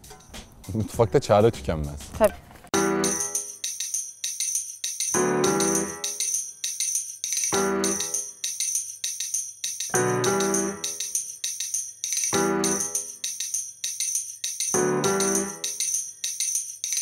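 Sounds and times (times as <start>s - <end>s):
jingling percussion beat: 0.0s - 2.2s, 2.8s - 17.0s
keyboard chord: 2.8s - 3.4s, 10.0s - 10.9s, 14.8s - 15.6s.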